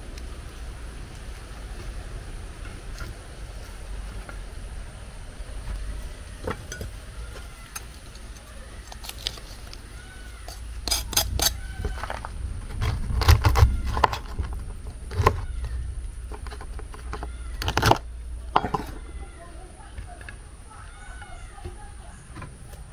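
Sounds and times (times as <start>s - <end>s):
low steady rumble: 0.0s - 22.9s
dishes and utensils clinking: 6.5s - 7.0s, 18.5s - 19.0s.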